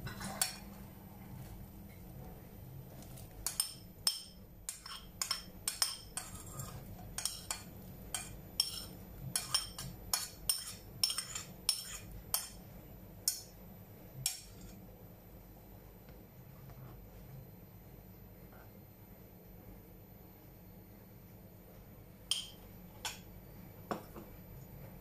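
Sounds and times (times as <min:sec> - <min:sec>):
metal spoon clinking on ceramic plate: 0:03.4 - 0:12.6, 0:22.3 - 0:22.6.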